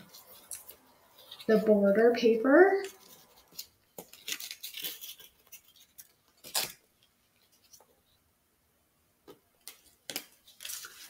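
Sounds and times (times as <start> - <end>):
paper peeling crackles: 2.8 - 8.2, 9.6 - 11.0.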